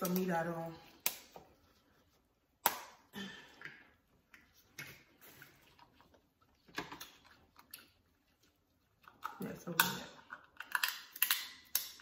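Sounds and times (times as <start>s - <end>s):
wet chewing and smacking: 2.5s - 12.0s.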